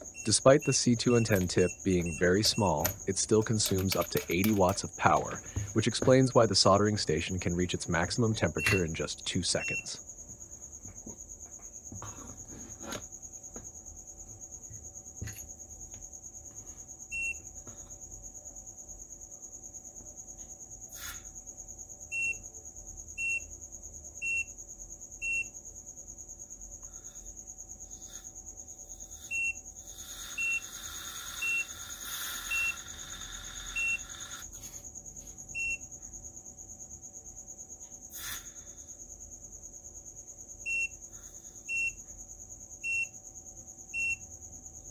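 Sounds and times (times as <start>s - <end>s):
hot soldering tip hissing in water: 29.9s - 34.6s, 38.1s - 38.6s.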